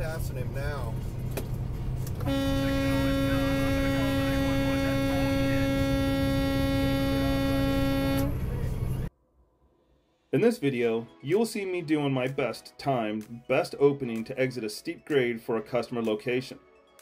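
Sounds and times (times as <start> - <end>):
low drone in truck cab: 0.0 - 9.1
long horn tone: 2.2 - 9.1.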